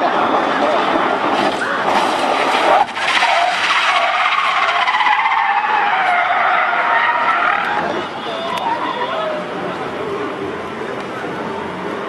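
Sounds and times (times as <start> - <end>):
tyres screeching: 0.1 - 9.6.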